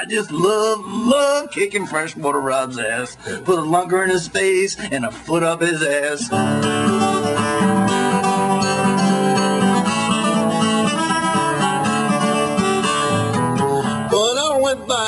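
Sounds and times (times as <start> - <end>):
person singing: 0.0 - 9.6, 11.4 - 15.0
strummed acoustic guitar: 0.0 - 15.0.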